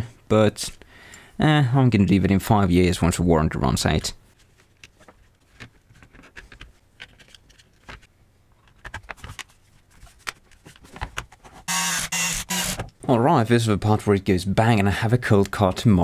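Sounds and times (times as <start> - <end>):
plastic parts clicking and knocking: 4.8 - 9.6, 10.2 - 13.1.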